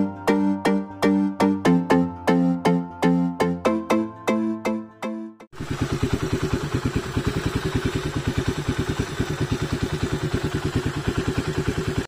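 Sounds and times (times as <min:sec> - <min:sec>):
motorcycle engine idling: 0:05.6 - 0:12.0.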